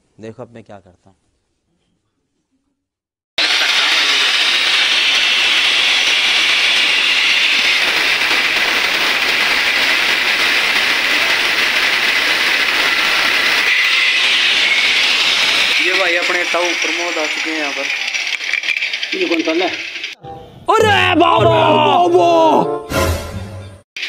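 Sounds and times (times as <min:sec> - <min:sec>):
angle grinder cutting steel: 0:03.4 - 0:20.2.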